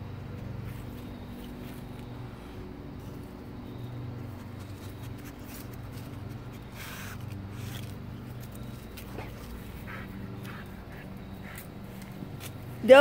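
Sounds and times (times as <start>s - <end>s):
steady low hum: 0.0s - 13.0s
dog sniffing in grass: 4.3s - 12.6s.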